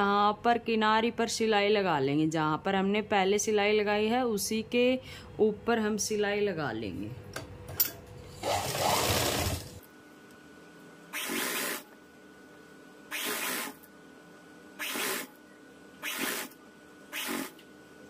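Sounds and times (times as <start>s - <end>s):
sewing machine stitching: 8.4s - 9.8s, 11.2s - 11.8s, 16.0s - 17.6s.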